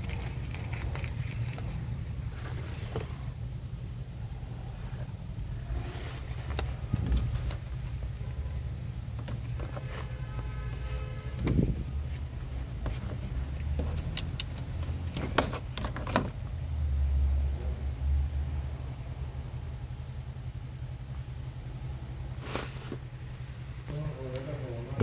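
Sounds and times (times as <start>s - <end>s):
steady low rumble: 0.0s - 9.6s.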